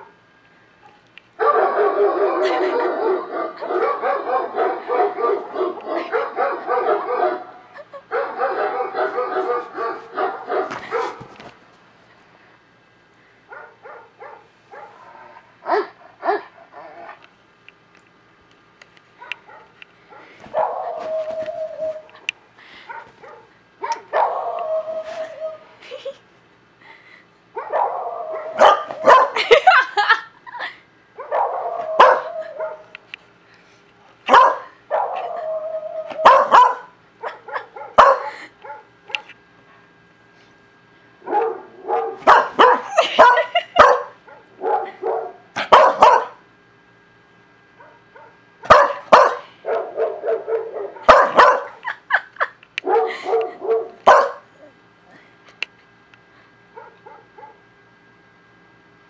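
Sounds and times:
dog barking: 1.4s - 7.5s, 8.1s - 11.3s, 13.5s - 16.5s, 19.2s - 21.1s, 22.9s - 24.5s, 27.6s - 29.4s, 31.2s - 32.9s, 34.3s - 35.3s, 36.2s - 38.9s, 41.3s - 46.4s, 47.8s - 51.8s, 52.8s - 54.5s, 56.7s - 57.6s.

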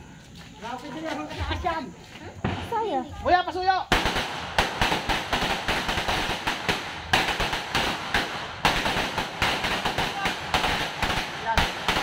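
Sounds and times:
firecrackers bangs and crackles: 3.8s - 12.0s.

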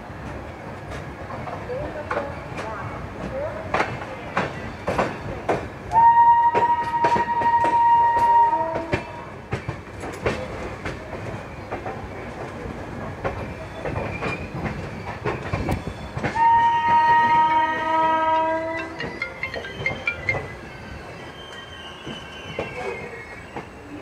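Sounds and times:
train wheels clacking on rail joints: 0.9s - 5.8s, 6.4s - 20.6s
train horn blast: 5.9s - 9.0s, 16.4s - 18.9s.

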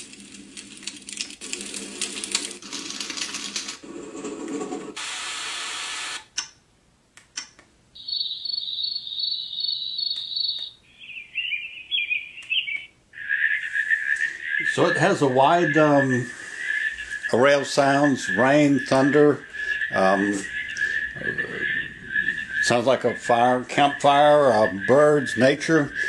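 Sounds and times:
bird-like chirping: 8.0s - 26.0s
high pulsing chirp: 8.0s - 26.0s.

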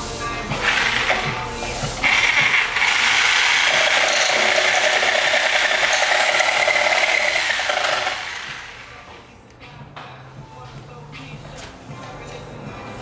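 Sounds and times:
power tool whining and clattering: 2.0s - 8.9s.

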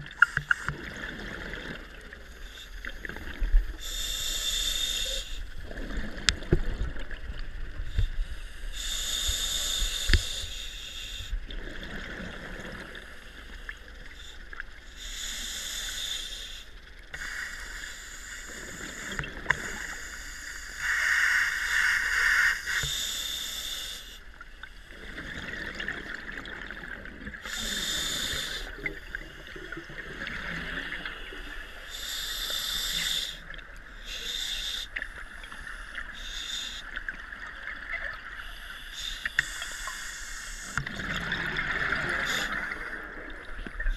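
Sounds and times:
diver breathing through regulator: 3.8s - 5.5s, 7.9s - 11.4s, 15.0s - 25.0s, 27.4s - 29.6s, 31.7s - 37.0s.

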